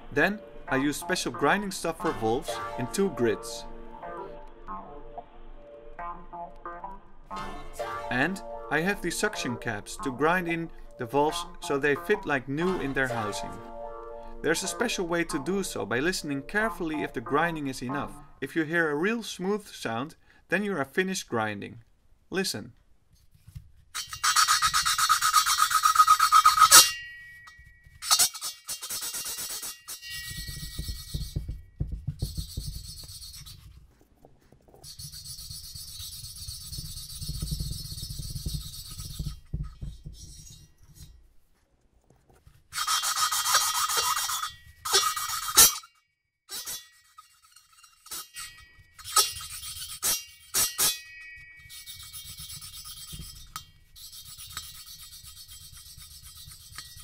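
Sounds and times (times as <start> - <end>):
gritty rasping scrape of valve lapping: 24.0 - 27.0, 34.8 - 39.4, 42.7 - 45.9, 46.5 - 51.0, 51.6 - 57.0.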